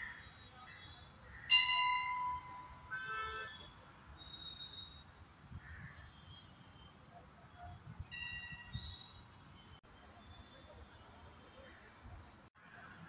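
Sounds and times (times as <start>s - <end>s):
vehicle horn honks: 2.8s - 3.8s.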